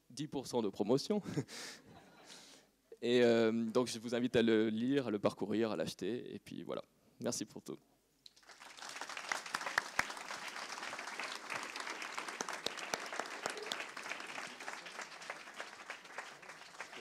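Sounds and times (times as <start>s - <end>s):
audience applauding: 8.3s - 17.0s.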